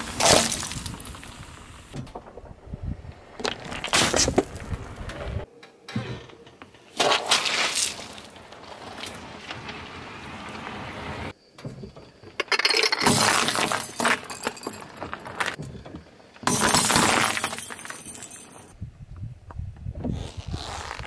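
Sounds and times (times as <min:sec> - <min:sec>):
tyre crushing objects on asphalt: 0:00.0 - 0:01.4, 0:06.9 - 0:10.8, 0:13.0 - 0:18.4.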